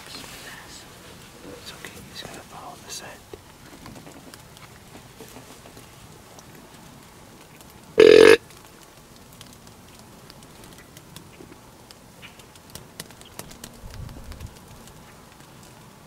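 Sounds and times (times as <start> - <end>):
deer grunt call: 8.0 - 8.4.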